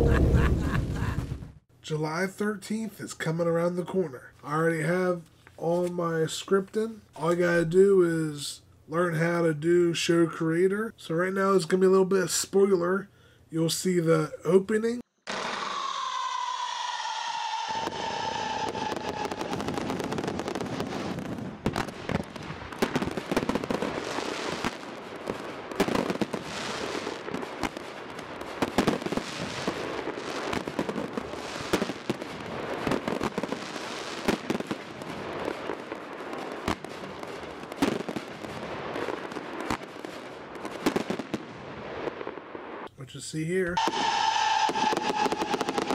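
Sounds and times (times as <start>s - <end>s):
firework shots banging: 15.2s - 42.8s, 43.8s - 45.9s
fireworks crackling and fizzing: 15.3s - 42.9s, 43.8s - 45.9s.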